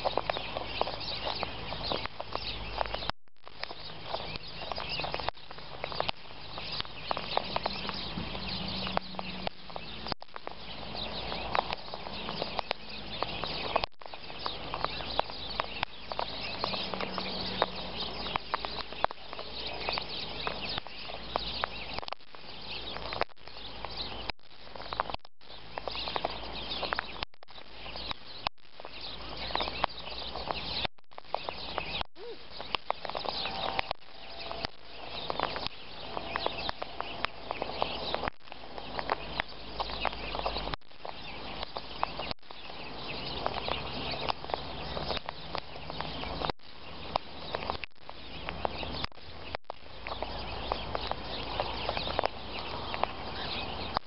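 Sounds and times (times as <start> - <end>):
beak pecking seed on gravel: 0.0 - 54.0.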